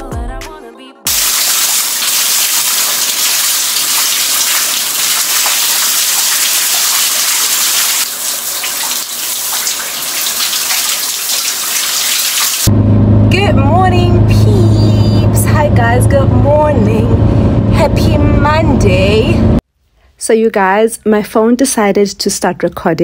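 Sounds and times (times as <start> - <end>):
music: 0.0 - 1.1.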